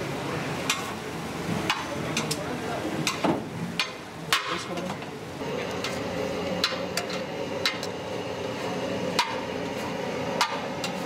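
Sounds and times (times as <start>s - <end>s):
street stall background noise: 0.0s - 11.0s
metal spatula clanking on pan: 0.7s - 0.9s, 9.2s - 9.4s.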